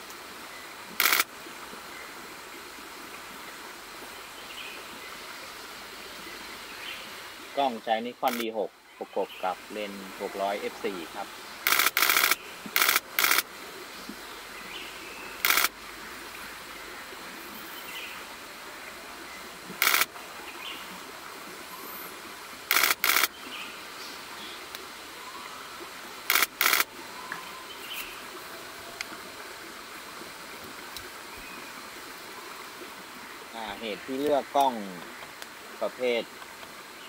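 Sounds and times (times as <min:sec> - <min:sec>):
faint outdoor background: 0:00.0 - 0:37.0
camera shutter bursts: 0:01.0 - 0:01.3, 0:08.3 - 0:08.5, 0:11.6 - 0:13.4, 0:15.4 - 0:15.7, 0:19.8 - 0:20.1, 0:22.7 - 0:23.3, 0:26.3 - 0:26.9.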